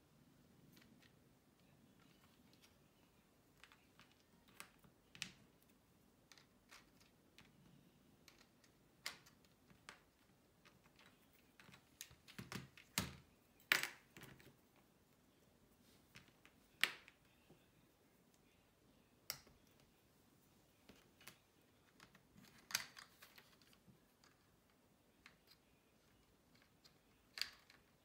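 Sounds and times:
plastic pieces clicking and clattering: 8.2s - 14.5s, 20.9s - 28.0s.

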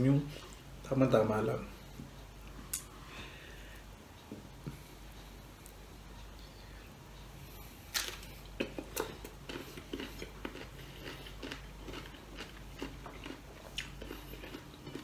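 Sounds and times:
person chewing: 7.9s - 15.0s.

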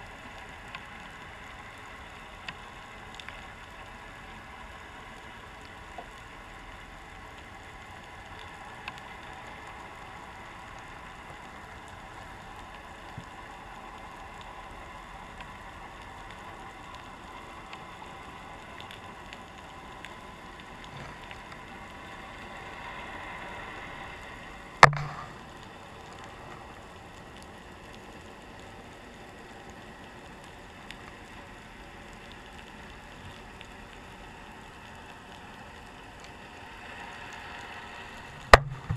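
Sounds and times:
faint underwater hiss: 0.0s - 38.9s
small underwater clicks: 0.0s - 38.9s
sharp knock: 24.8s - 25.2s.

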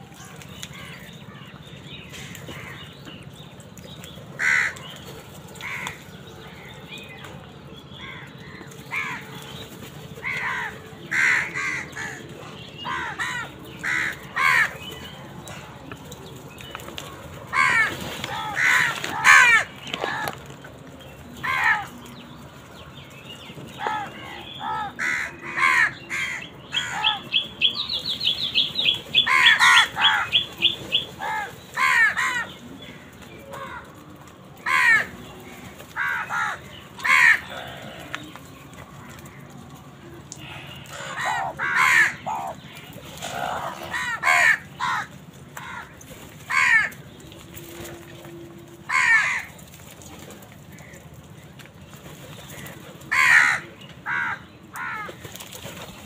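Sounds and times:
crows cawing: 4.4s - 4.8s, 5.6s - 6.0s, 8.0s - 9.2s, 10.2s - 14.8s, 17.5s - 20.4s, 23.8s - 27.2s, 29.2s - 30.4s, 31.2s - 32.5s, 34.6s - 35.1s, 36.0s - 38.4s, 40.4s - 42.6s, 43.2s - 47.0s, 48.9s - 49.6s, 52.6s - 55.2s.

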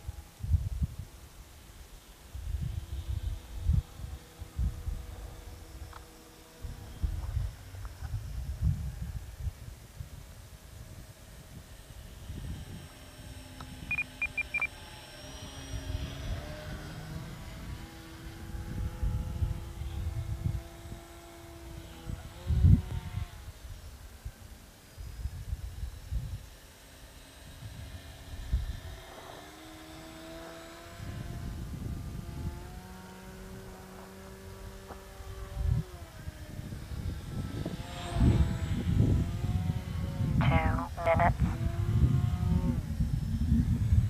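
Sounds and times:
model plane motor whine: 0.0s - 40.4s, 41.4s - 44.0s
wind buffeting microphone: 2.4s - 14.7s, 15.3s - 24.4s, 27.5s - 40.5s, 41.2s - 44.0s
quick high beeps: 13.9s - 14.7s.

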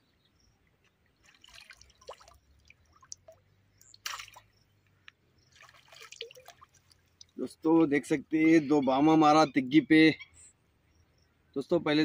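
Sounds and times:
water dripping and splashing: 0.8s - 4.7s, 5.4s - 7.4s.

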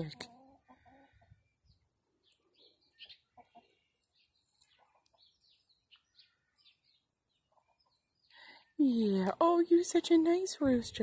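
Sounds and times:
chicken clucking: 0.2s - 1.4s, 2.9s - 3.8s.

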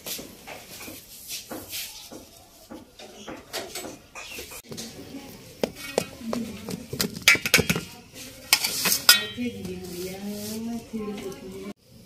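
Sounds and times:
knife scraping a steel pan: 8.4s - 10.7s.

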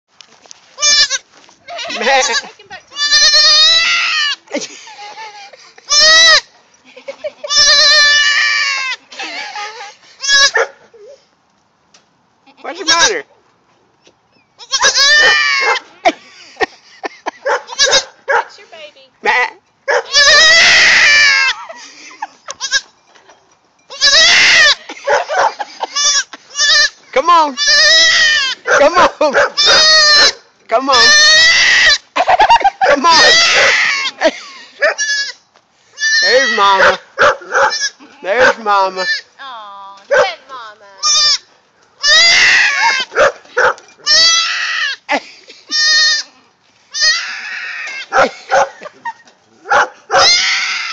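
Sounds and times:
goat kid bleating: 0.8s - 6.5s, 7.4s - 10.6s, 12.4s - 13.3s, 14.6s - 16.0s, 17.7s - 18.2s, 20.1s - 21.7s, 22.5s - 22.9s, 23.9s - 25.0s, 25.8s - 28.7s, 29.6s - 32.0s, 33.1s - 34.2s, 35.0s - 36.8s, 37.6s - 38.2s, 38.8s - 43.2s, 44.0s - 45.1s, 45.7s - 48.1s, 50.2s - 50.9s.

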